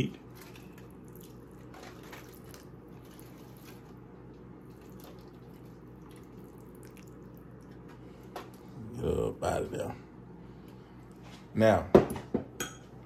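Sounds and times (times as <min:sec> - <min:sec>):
liquid trickling and dripping: 0:04.6 - 0:08.0.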